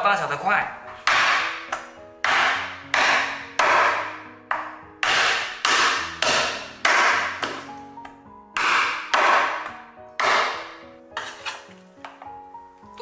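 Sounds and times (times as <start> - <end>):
background music: 0.0 - 13.0
cleaver chopping on board: 1.0 - 7.7, 8.6 - 12.2.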